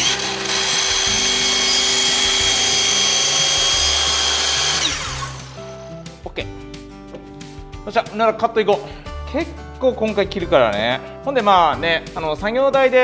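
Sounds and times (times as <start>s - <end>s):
miter saw whining: 0.0s - 5.7s
saw motor winding down: 0.0s - 5.8s.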